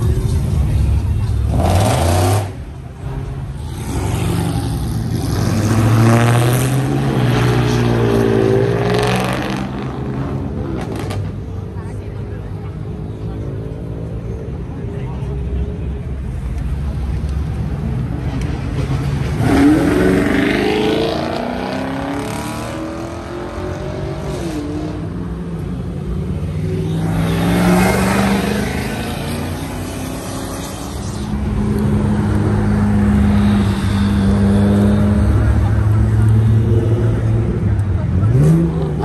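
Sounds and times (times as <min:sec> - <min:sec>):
car engines revving: 0:00.0 - 0:39.0
cars accelerating hard: 0:01.3 - 0:11.5, 0:18.1 - 0:39.0.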